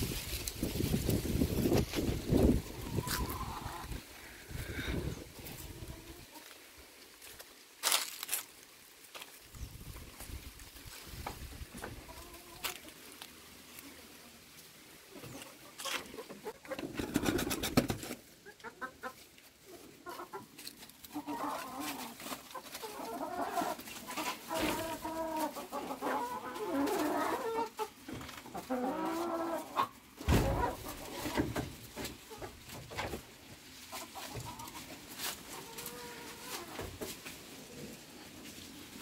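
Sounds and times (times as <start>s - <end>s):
young chickens clucking: 1.1s - 6.6s, 11.2s - 13.2s, 13.8s - 38.5s.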